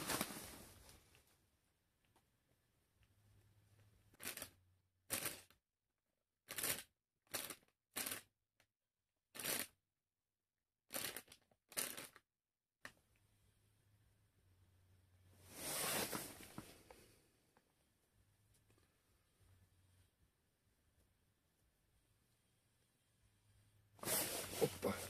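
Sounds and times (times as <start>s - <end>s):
short rustles: 24.0s - 25.0s.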